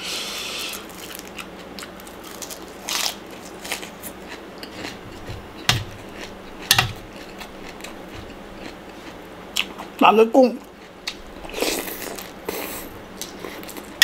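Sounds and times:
crunching and chewing: 0:00.6 - 0:10.0, 0:10.6 - 0:14.0.

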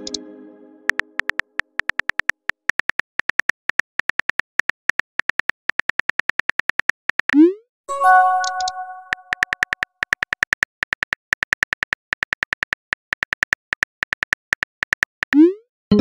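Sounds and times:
phone keyboard typing clicks: 0:00.9 - 0:07.4, 0:08.2 - 0:15.4
synthesized chime: 0:07.9 - 0:09.4.

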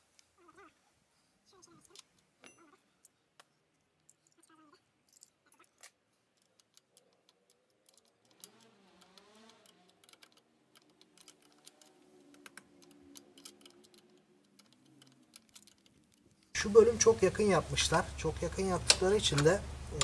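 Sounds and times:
wrench clicking on bolt: 0:05.8 - 0:16.0.

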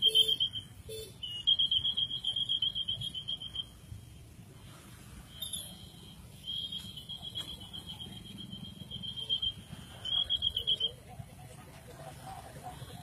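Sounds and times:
high-pitched electronic alarm tone: 0:00.0 - 0:04.0, 0:05.2 - 0:11.0.

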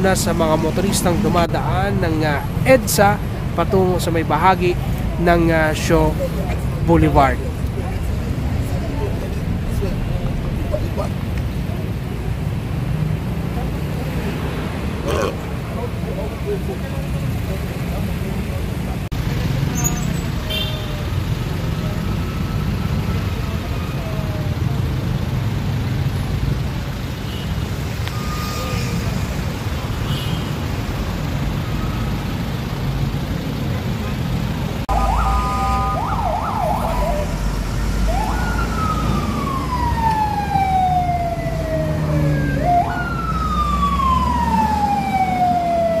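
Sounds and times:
heavy road traffic: 0:00.0 - 0:46.0
emergency vehicle siren: 0:21.2 - 0:25.2, 0:27.2 - 0:30.2, 0:31.0 - 0:33.6, 0:34.9 - 0:46.0.

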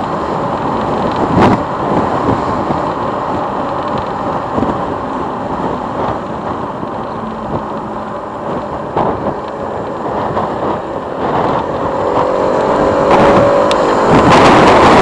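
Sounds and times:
motorcycle engine accelerating: 0:00.0 - 0:15.0
wind rush on microphone: 0:00.0 - 0:15.0.

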